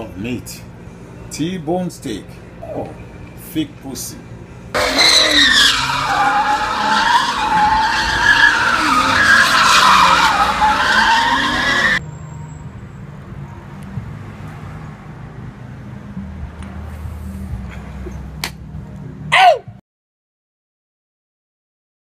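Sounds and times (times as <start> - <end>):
car tyres squealing: 4.7 - 12.7.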